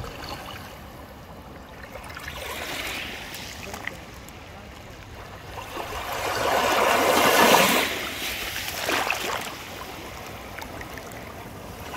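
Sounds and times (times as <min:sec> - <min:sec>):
small waves washing ashore: 0:00.0 - 0:11.9.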